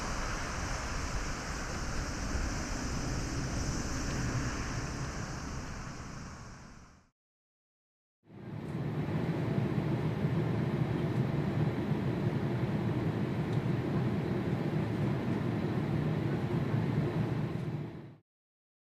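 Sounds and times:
airliner cabin rumble: 0.0s - 7.1s, 8.4s - 18.1s.

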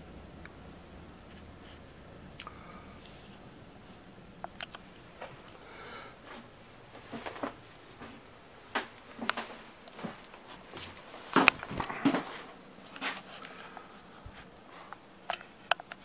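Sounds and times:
knocks and clicks of movement: 6.3s - 16.0s.

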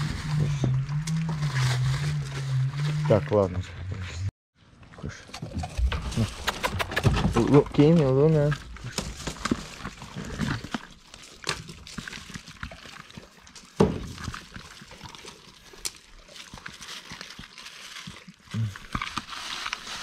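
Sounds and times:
dogs crunching raw chicken: 5.2s - 20.0s.

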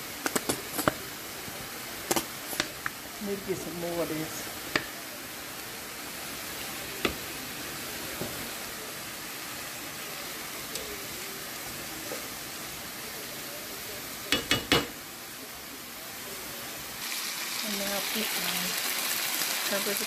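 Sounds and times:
onions sizzling in a frying pan: 0.0s - 20.0s
spatula knocking on pan: 14.3s - 15.0s.

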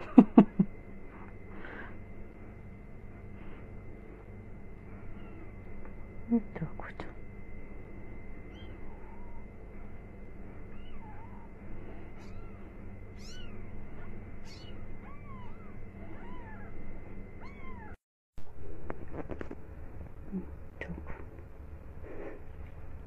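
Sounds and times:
low steady hum: 0.0s - 23.0s
kittens mewing: 5.0s - 5.6s, 10.7s - 16.8s.

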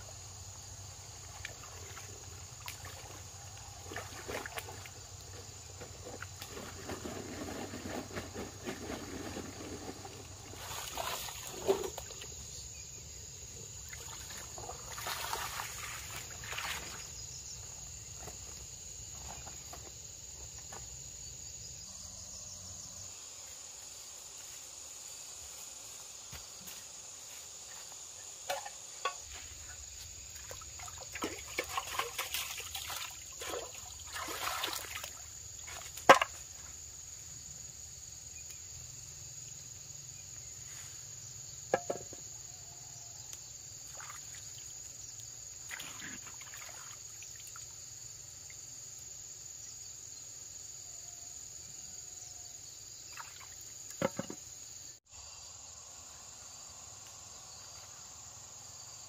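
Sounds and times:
insects chirring: 0.0s - 59.0s
splashing in stream water: 1.1s - 12.5s, 13.8s - 17.2s, 28.4s - 36.7s, 43.8s - 48.0s, 53.0s - 54.5s
metal pot knocks: 41.7s - 42.2s.

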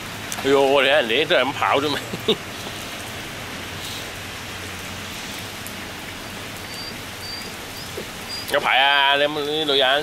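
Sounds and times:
rain on wet pavement: 0.0s - 10.0s
faint high chirps: 6.7s - 8.6s.

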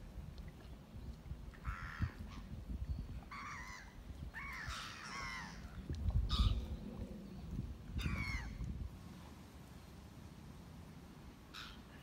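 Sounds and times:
crows cawing: 1.6s - 2.2s.

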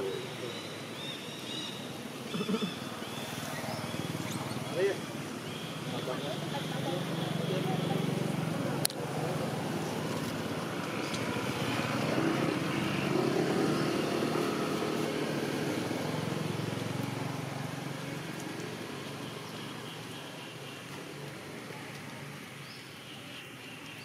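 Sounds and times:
motor vehicle engine: 1.8s - 20.2s.

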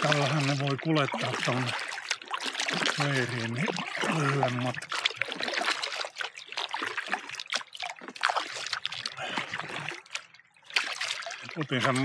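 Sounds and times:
paddle splashing water: 0.0s - 12.0s.

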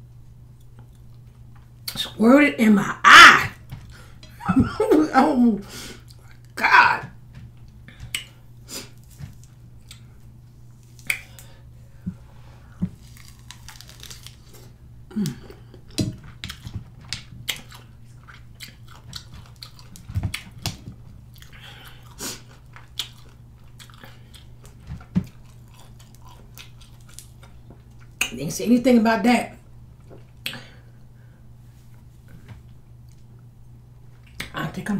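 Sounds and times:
steady low hum: 0.0s - 34.9s
wet biting and chewing: 12.8s - 28.3s.

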